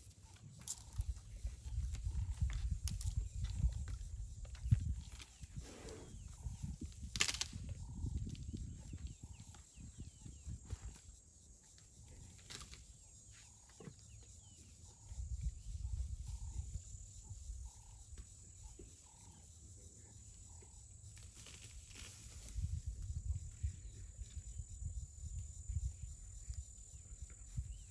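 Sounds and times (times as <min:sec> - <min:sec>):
branches rustling and snapping: 0:07.0 - 0:07.6.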